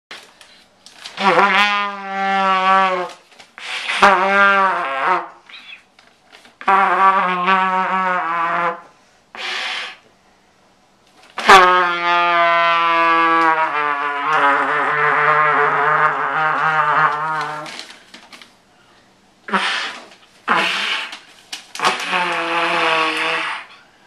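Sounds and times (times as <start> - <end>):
trumpet long low notes: 1.2 - 3.2, 6.6 - 9.5, 11.4 - 17.8, 21.8 - 23.8
puff of air: 3.6 - 4.3, 8.8 - 10.1, 19.5 - 24.0.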